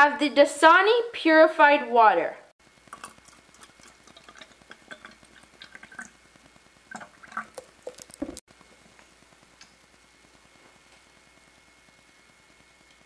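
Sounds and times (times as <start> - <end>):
water pouring into plastic cup: 2.9 - 6.2, 6.9 - 8.4.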